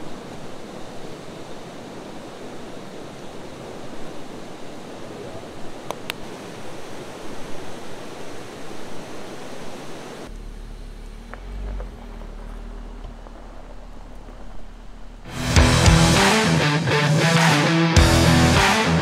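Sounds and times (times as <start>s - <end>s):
low steady hum: 10.2s - 15.6s.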